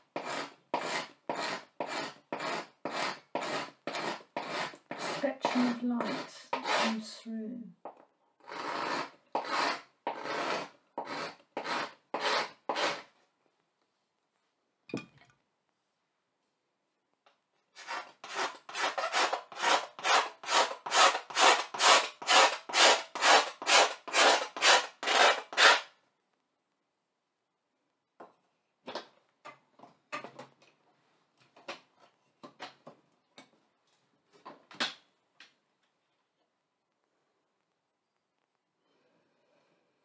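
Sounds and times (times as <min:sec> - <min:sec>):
carving tool scraping blackboard: 0:00.0 - 0:07.1, 0:08.4 - 0:13.2, 0:17.8 - 0:26.0.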